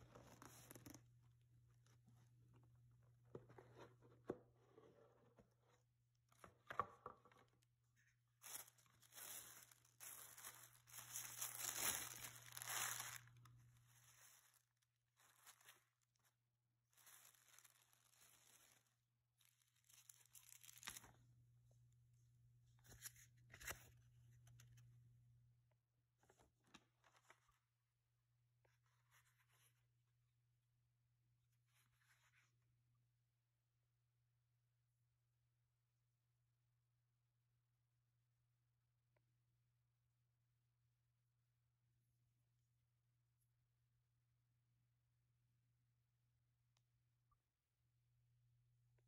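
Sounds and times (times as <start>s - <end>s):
paper rustling and crinkling: 8.4s - 16.3s, 16.9s - 21.2s.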